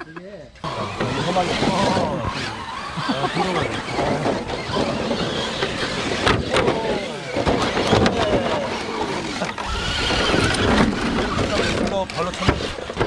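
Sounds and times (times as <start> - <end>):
electric motors whining: 0.6 - 13.0
plastic knocks of toy trucks: 3.9 - 13.0.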